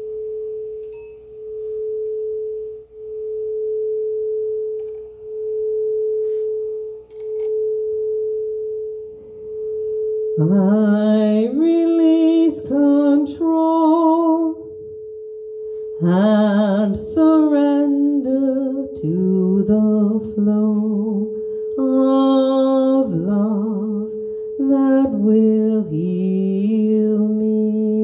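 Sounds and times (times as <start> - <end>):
woman singing a chant: 16.0 - 28.0.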